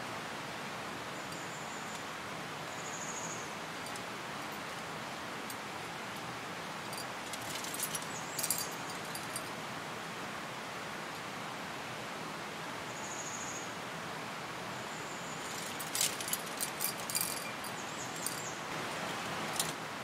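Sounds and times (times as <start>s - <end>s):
wind in the trees: 0.0s - 20.0s
metallic clinks of climbing gear: 3.8s - 4.9s, 6.8s - 9.6s, 15.4s - 19.8s.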